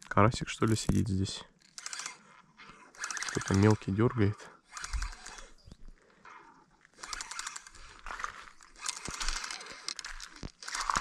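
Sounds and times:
fishing reel clicking: 0:01.6 - 0:05.6, 0:06.9 - 0:11.0.

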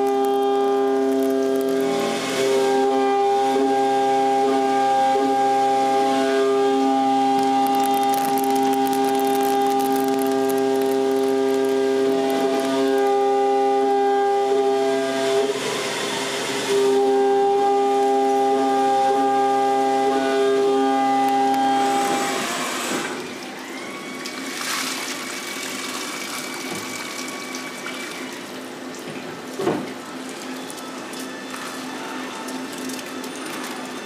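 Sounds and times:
milling machine cutting whine: 0:00.0 - 0:24.6, 0:25.2 - 0:34.0.

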